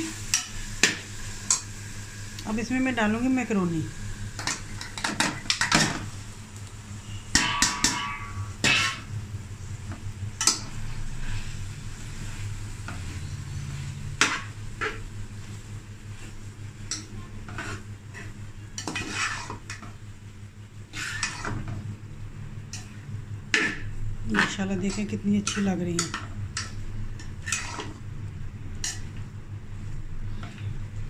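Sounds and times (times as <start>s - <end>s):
ringing metal clang: 7.3s - 8.5s
metal spoon stirring in pot: 16.9s - 19.9s, 20.9s - 21.8s, 22.6s - 28.0s.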